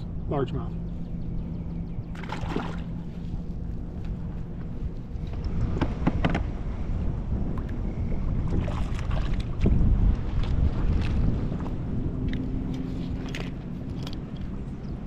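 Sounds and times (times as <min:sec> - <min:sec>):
wind buffeting microphone: 0:00.0 - 0:15.0
fishing gear clicks and knocks: 0:12.2 - 0:14.9.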